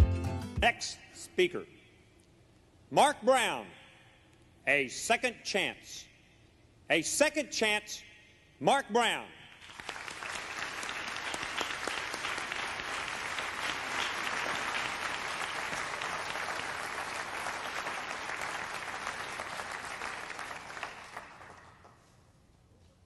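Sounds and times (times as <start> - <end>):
audience applauding: 9.6 - 22.1.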